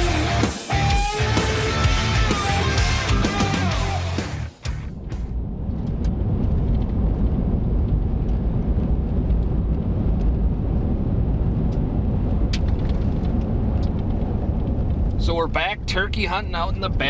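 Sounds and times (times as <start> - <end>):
road and engine rumble: 0.0 - 17.0.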